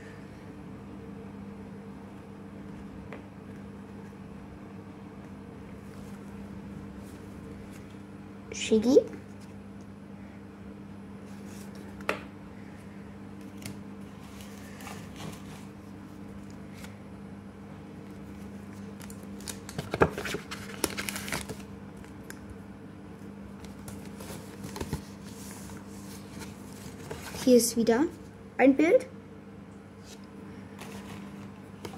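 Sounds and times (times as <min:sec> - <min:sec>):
steady low hum: 0:00.0 - 0:31.9
cards and paper rustling: 0:13.4 - 0:15.8, 0:18.0 - 0:22.1, 0:23.6 - 0:27.6, 0:30.0 - 0:31.9.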